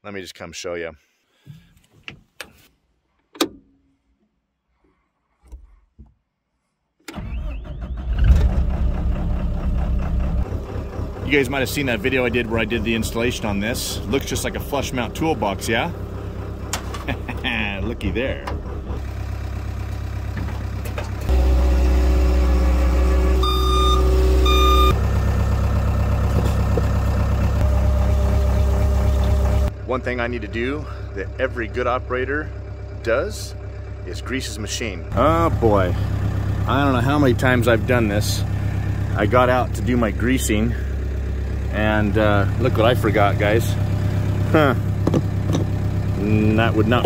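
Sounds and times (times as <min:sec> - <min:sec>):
diesel engine running: 0:07.1 - 0:47.0
backup alarm beeps: 0:23.3 - 0:25.0.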